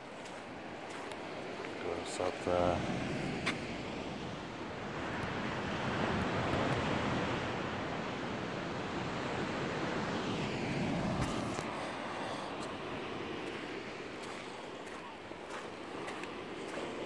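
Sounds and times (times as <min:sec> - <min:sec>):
wind: 0:00.0 - 0:17.0
sea surf breaking on rocks: 0:10.8 - 0:17.0.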